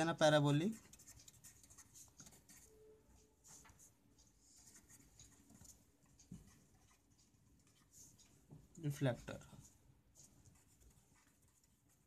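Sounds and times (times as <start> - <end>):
marker scratching on paper: 0.0 - 8.5, 9.6 - 12.0.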